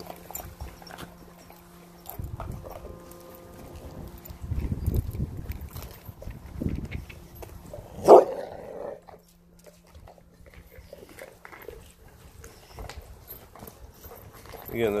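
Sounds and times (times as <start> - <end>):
dog gnawing on bone: 0.0 - 15.0
dog barking with a growl: 7.9 - 9.0.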